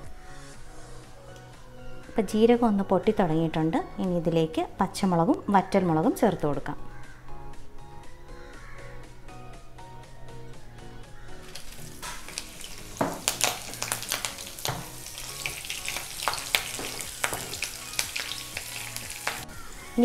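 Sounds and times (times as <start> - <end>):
chillies sizzling in hot oil: 11.4 - 20.0
seeds crackling and popping: 11.4 - 20.0
wooden spoon stirring: 11.5 - 19.9.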